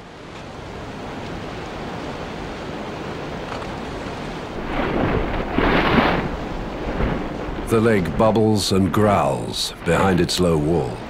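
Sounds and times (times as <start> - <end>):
lava bubbling and rumbling: 3.4 - 11.0
lava spattering: 4.6 - 10.3.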